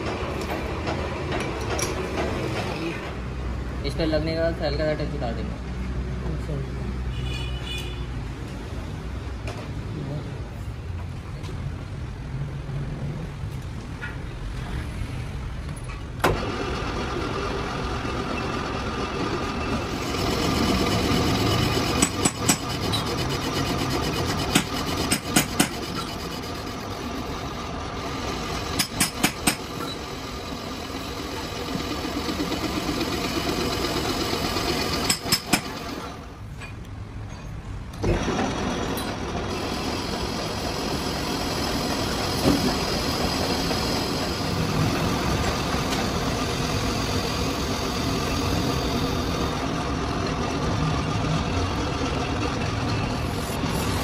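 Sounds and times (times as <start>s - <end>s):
metal lathe cutting iron bar: 19.8s - 36.1s, 38.1s - 49.7s.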